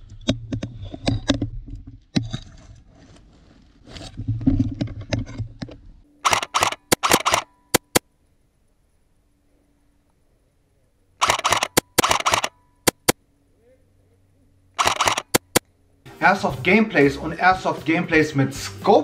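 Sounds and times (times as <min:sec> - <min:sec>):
sharp clicks and knocks: 0:04.4 - 0:08.0, 0:11.2 - 0:13.2, 0:14.8 - 0:15.7
loud sharp cracks: 0:06.2 - 0:08.0, 0:11.2 - 0:13.2, 0:14.8 - 0:15.6.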